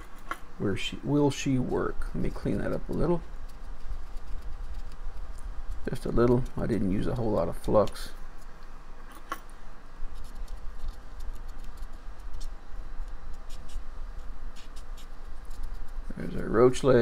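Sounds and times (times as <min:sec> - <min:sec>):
low steady hum: 0:00.0 - 0:17.0
cotton swab scrubbing circuit board: 0:02.2 - 0:08.5, 0:10.0 - 0:17.0.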